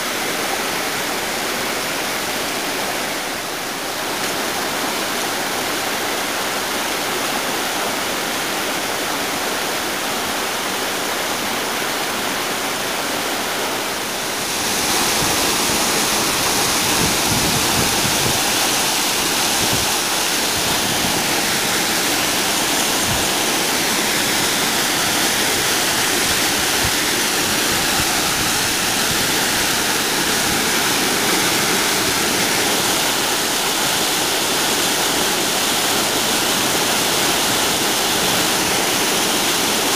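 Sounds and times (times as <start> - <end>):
stream rushing over rocks: 0.0 - 39.9
waterfall plunging into pool: 14.2 - 39.9.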